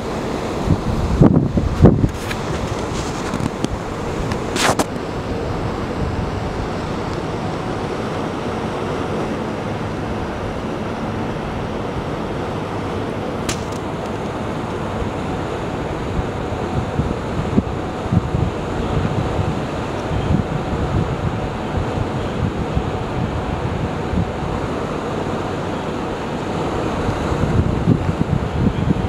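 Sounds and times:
ship engine hum: 0.0 - 29.0
wind rush on microphone: 0.0 - 29.0.

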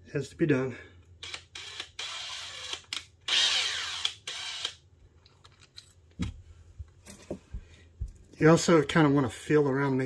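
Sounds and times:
power drill drilling: 1.6 - 4.8.

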